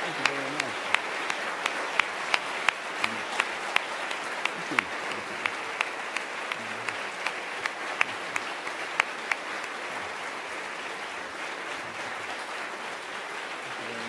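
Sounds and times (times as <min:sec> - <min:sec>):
audience applauding: 0:00.0 - 0:14.0.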